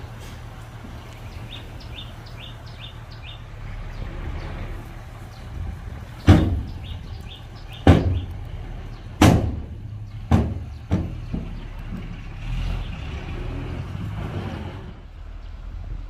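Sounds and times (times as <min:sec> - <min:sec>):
heavy machinery engine running: 0:00.0 - 0:16.0
loud bangs: 0:06.1 - 0:12.8.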